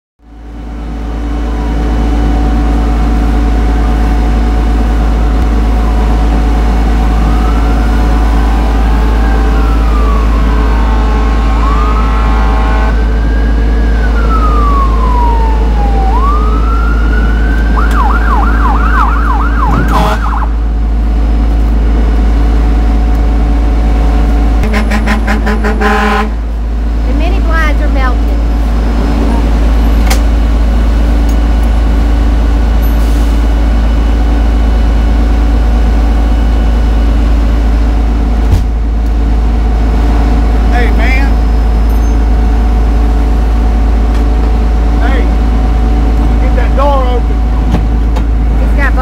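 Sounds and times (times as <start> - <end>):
engine drone: 0.2 - 49.0
emergency siren wailing and yelping: 1.0 - 20.8
horn blast: 10.0 - 13.2, 19.5 - 20.6, 24.6 - 26.5.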